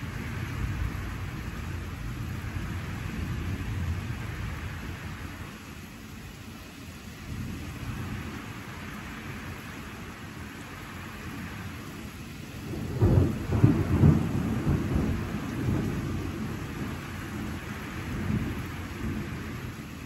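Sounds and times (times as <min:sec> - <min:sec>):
thunder rumbling: 0:00.0 - 0:05.6, 0:12.6 - 0:20.0
steady rain: 0:00.0 - 0:20.0.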